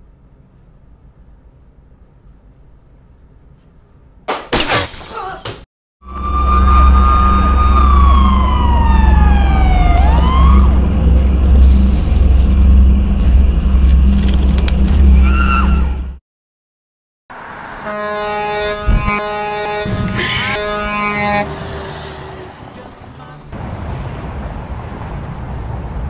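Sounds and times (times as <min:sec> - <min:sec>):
crash with glass shattering: 0:04.5 - 0:05.5
police siren wailing: 0:06.0 - 0:13.0, 0:17.9 - 0:22.5
deep steady rumble: 0:06.4 - 0:16.2.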